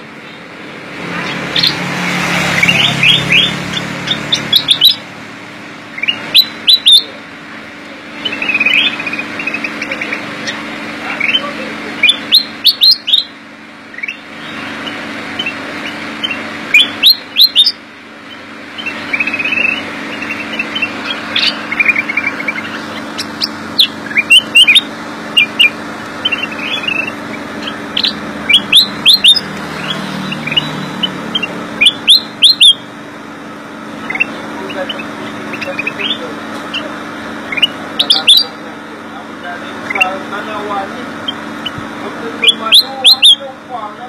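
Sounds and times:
steady low hum: 0.0s - 44.0s
bird trill: 1.2s - 5.0s, 5.9s - 7.2s, 8.1s - 32.9s, 34.0s - 38.6s, 39.8s - 40.2s, 41.2s - 41.8s, 42.4s - 43.5s
bird whistling song: 1.5s - 1.8s, 2.6s - 5.0s, 5.9s - 7.1s, 8.2s - 11.4s, 12.0s - 13.3s, 13.9s - 32.8s, 37.5s - 38.5s, 42.4s - 43.4s.

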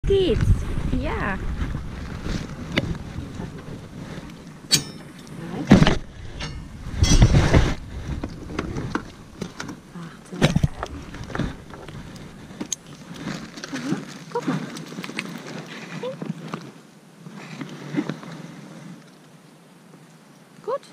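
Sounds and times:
rustling handling noise: 1.2s - 19.3s
metal crate knocks and rattles: 5.7s - 7.7s.

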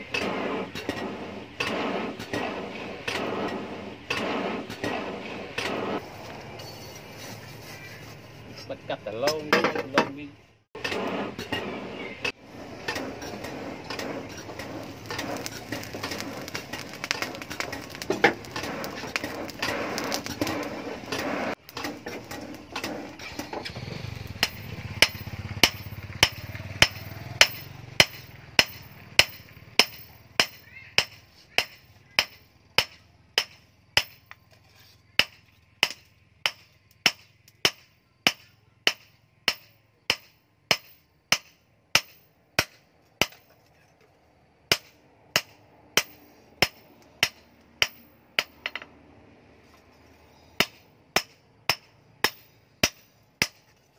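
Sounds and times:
forge fire rushing and crackling: 0.0s - 9.2s, 10.7s - 34.8s.

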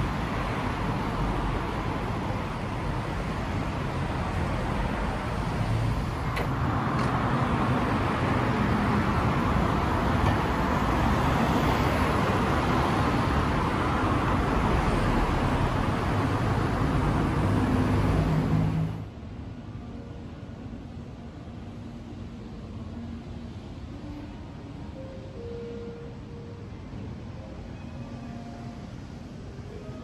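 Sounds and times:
road traffic rumble: 0.0s - 30.0s.

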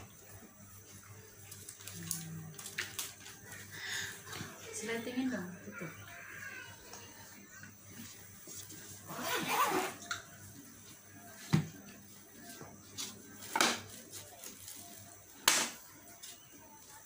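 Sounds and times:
zipper rasp: 9.1s - 10.0s.

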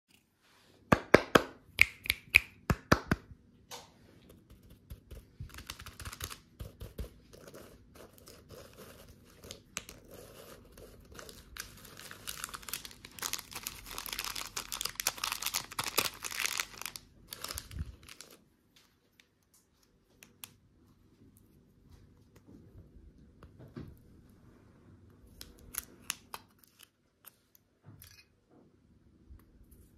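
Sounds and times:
foil crinkling and rustling: 11.0s - 18.4s.

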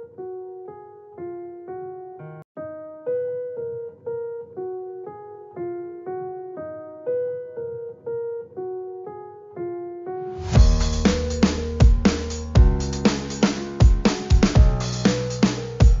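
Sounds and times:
music with heavy beat: 10.4s - 16.0s.

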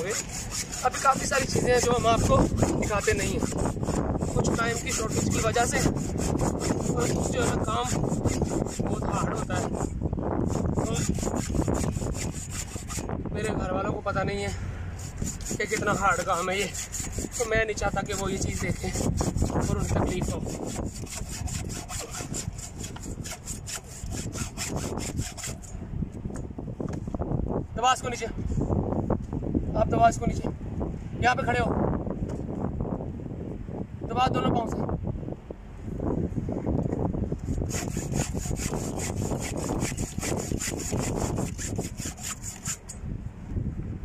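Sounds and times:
hacksaw cutting through cable: 0.0s - 13.2s, 15.0s - 25.8s, 37.5s - 43.0s.

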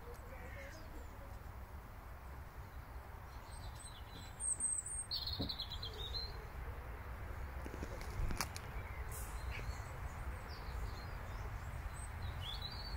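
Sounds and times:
bird calls and trill: 2.7s - 12.9s.

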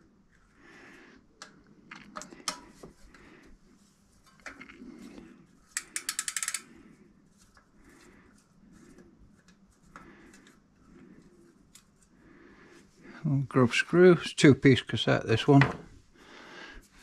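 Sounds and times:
rapid ratchet clicking: 5.8s - 6.7s.

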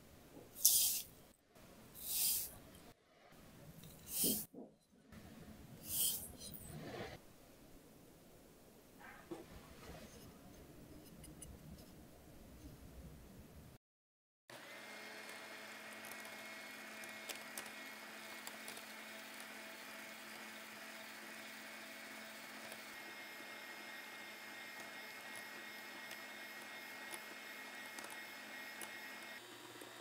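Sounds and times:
electric hand mixer running: 14.5s - 30.0s.

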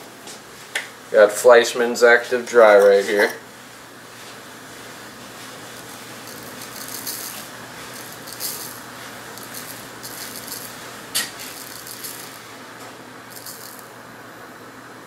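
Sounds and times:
granules rattling in jar: 6.2s - 12.5s, 13.3s - 13.9s.

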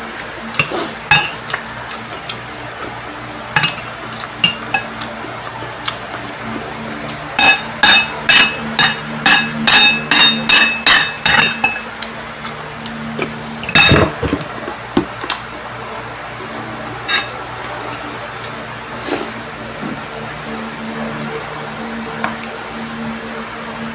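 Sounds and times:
spoon clinking on ceramic bowl: 3.6s - 4.9s, 7.4s - 11.8s, 13.7s - 14.1s.

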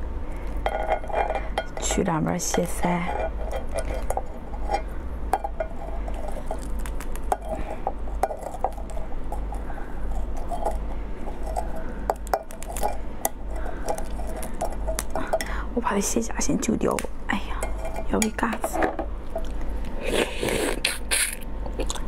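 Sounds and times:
steady low hum: 0.0s - 22.0s
crab shell crackling and snapping: 6.1s - 10.6s, 11.5s - 15.5s.

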